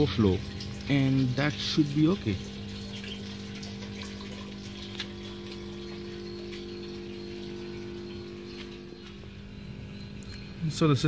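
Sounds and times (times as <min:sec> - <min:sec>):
water running into tank: 0:00.0 - 0:09.3
water drips: 0:00.0 - 0:09.5
pump humming: 0:00.0 - 0:11.0.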